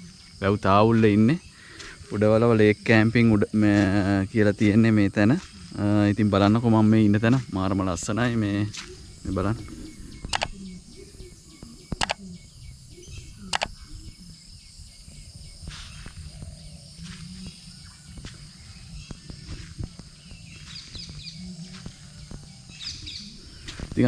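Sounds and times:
insects droning: 0.0s - 24.0s
bird chirps: 7.4s - 24.0s
sharp clicks: 10.3s - 10.6s, 11.9s - 12.2s, 13.5s - 13.8s.

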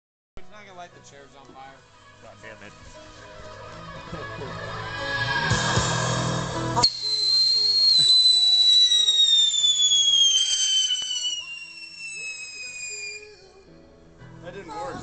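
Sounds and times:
firework whistling: 5.0s - 13.7s
firework crack: 5.4s - 13.6s.

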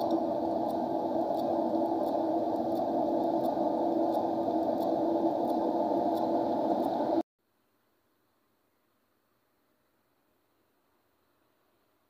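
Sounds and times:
blower and burner whirring rush: 0.0s - 7.2s.

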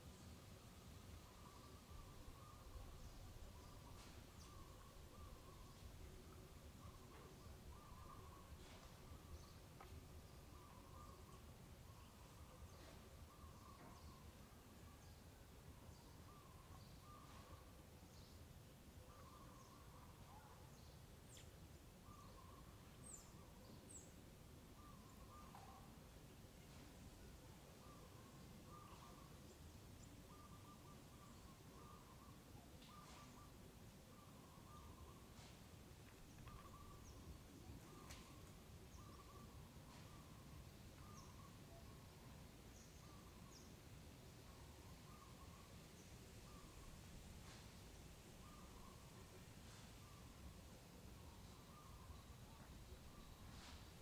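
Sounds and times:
distant birds calling: 1.0s - 15.0s, 19.0s - 54.0s
faint high chirps: 21.3s - 43.8s
bird call: 24.8s - 25.9s, 30.3s - 33.6s.

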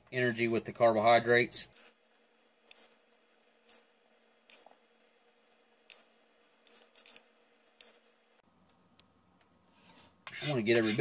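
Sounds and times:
plastic spoon scraping metal tray: 9.8s - 11.0s.

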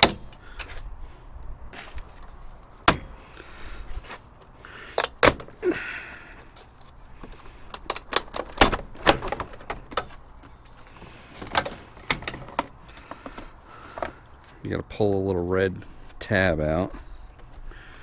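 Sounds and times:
plastic clips popping and rattling: 7.3s - 10.2s.

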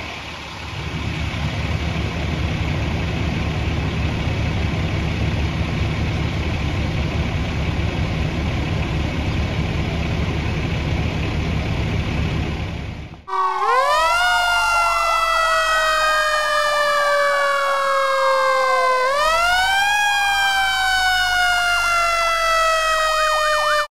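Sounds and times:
fire truck engines rumbling: 0.0s - 23.9s
wailing siren: 13.3s - 23.9s
warbling siren: 13.3s - 23.9s.

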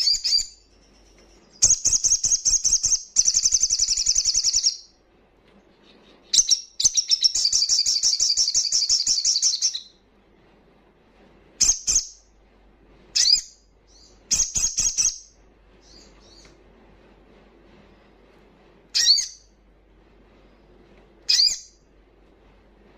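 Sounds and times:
bird trilling: 19.0s - 19.5s, 21.3s - 21.8s.

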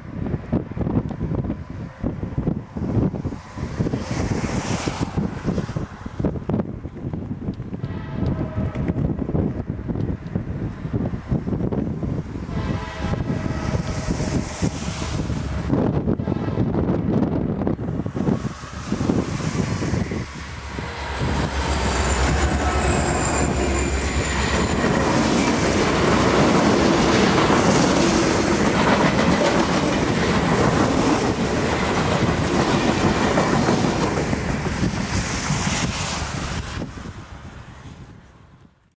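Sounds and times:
diesel locomotive rumble: 5.0s - 37.6s
high wheel squeal: 20.0s - 26.4s
train wheels clattering on rails: 20.8s - 35.1s.

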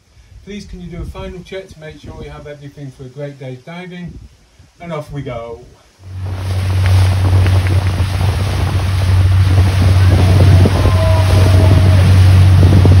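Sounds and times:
water rushing past: 5.9s - 13.0s
motorboat engine droning: 6.0s - 13.0s
wind buffeting microphone: 6.0s - 13.0s.

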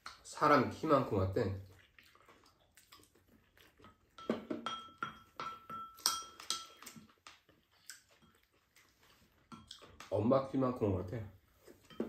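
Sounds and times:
metal spoons clinking on ceramic bowls: 3.9s - 7.2s, 9.5s - 10.2s, 11.8s - 12.0s.

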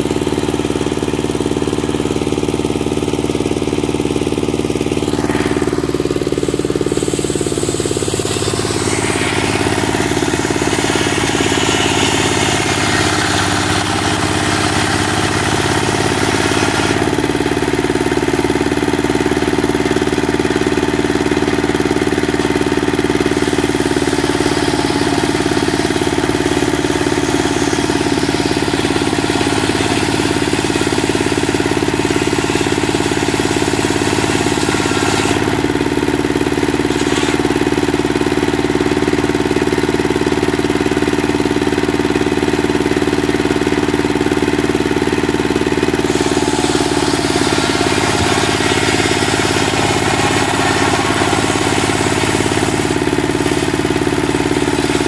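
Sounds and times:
circular saw cutting wood: 0.0s - 55.0s
diesel engine running: 0.0s - 55.0s.

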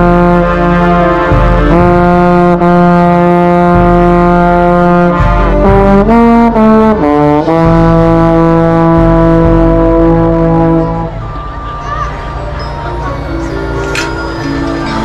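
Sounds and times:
bass trombone playing: 0.0s - 11.3s
brass band playing: 0.0s - 11.6s.

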